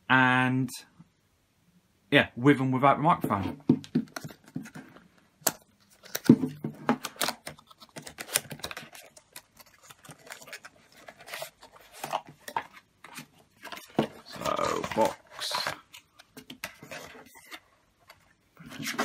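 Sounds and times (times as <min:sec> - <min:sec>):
cardboard box being opened: 0:05.9 - 0:17.7.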